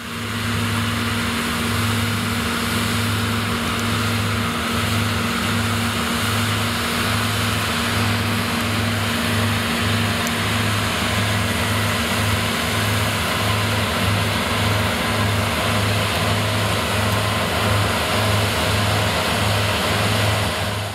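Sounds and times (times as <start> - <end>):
combine harvester engine drone: 0.0 - 20.9
threshing rushing noise: 0.0 - 20.9.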